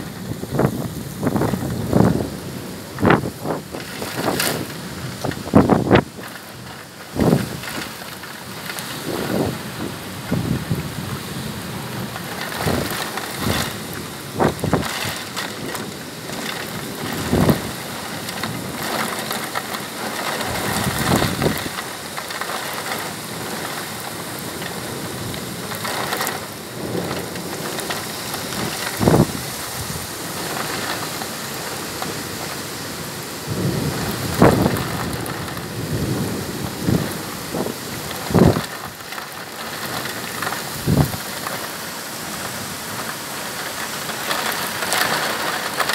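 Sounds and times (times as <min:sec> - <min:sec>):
heavy rain downpour: 0:00.0 - 0:45.9
thunder cracks: 0:12.2 - 0:21.8, 0:33.5 - 0:41.5.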